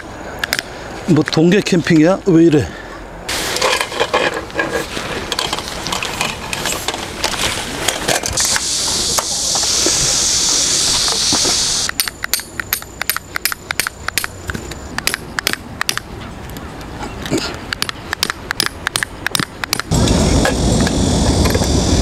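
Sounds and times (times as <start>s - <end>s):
steady hiss: 2.6s - 15.2s, 19.8s - 22.0s
camping gear rustling and knocking: 3.3s - 8.5s
sharp metallic clicks: 10.9s - 16.1s, 17.7s - 19.9s.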